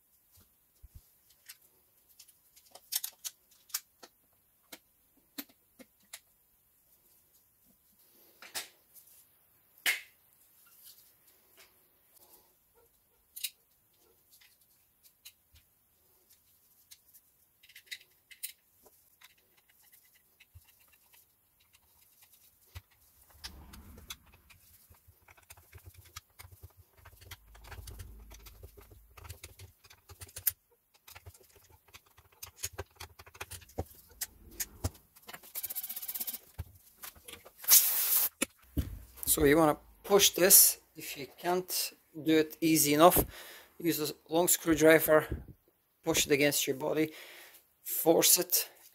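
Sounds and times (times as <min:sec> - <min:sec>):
plastic parts clicking and tapping: 0:02.2 - 0:06.3, 0:17.6 - 0:37.6
low handling rumble: 0:23.2 - 0:24.7
brief hiss: 0:37.6 - 0:38.4.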